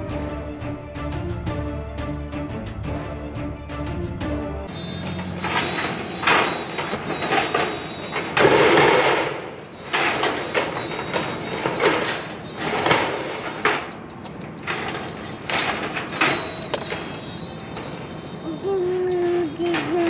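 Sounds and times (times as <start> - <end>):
steel framing clanking and scraping: 4.6 - 18.2.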